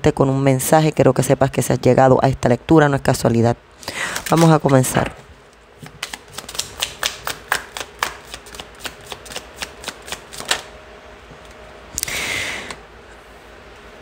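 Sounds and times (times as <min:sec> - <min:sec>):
cards being shuffled: 0:05.8 - 0:10.7.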